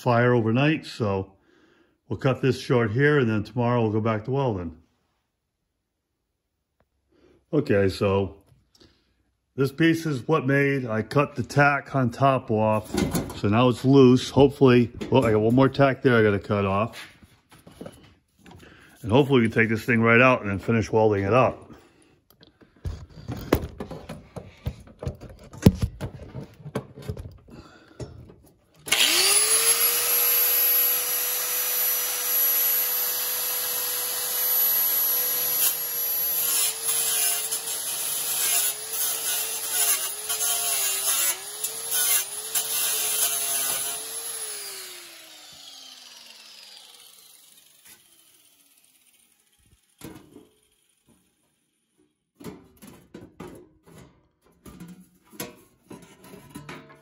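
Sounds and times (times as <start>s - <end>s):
grinder whining cutting steel: 28.8s - 51.9s.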